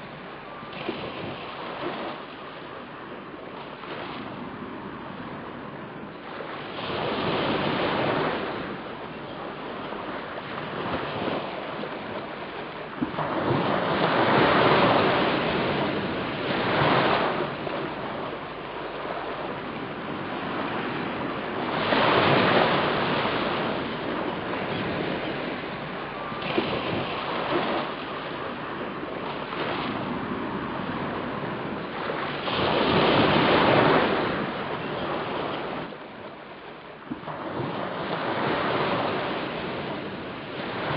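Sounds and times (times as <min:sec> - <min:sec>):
waves on shore: 0:00.0 - 0:40.9
wind on microphone: 0:00.0 - 0:40.9.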